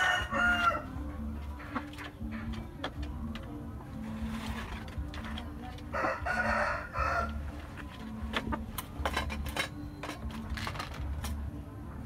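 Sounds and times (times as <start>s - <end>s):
rooster crowing: 0.0s - 0.9s, 6.0s - 7.4s.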